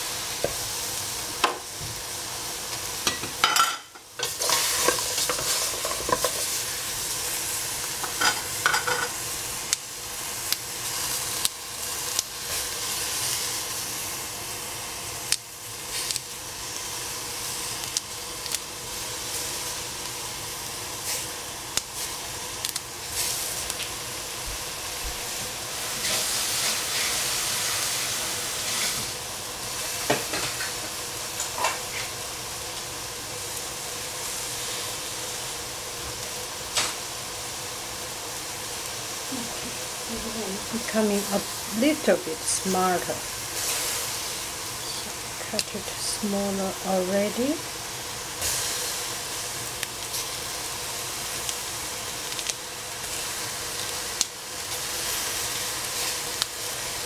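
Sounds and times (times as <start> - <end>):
vegetables sizzling in a pan: 0.0 - 57.0
utensil scraping against pan: 3.1 - 6.6.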